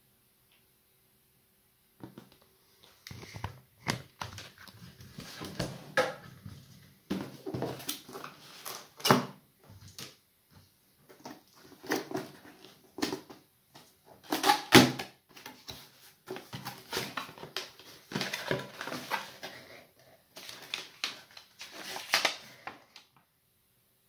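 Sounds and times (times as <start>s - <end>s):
cardboard scraping and rustling: 4.2s - 9.1s, 15.3s - 19.8s.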